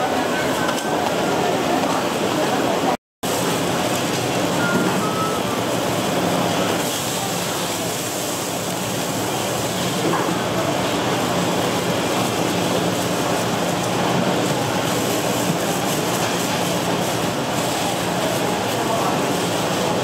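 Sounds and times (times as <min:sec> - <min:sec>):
fish cakes sizzling in oil: 0:06.0 - 0:20.0.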